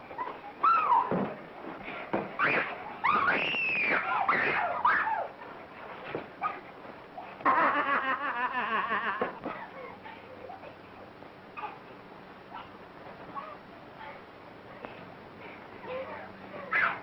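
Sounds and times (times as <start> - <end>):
women shrieking: 2.4 - 5.4.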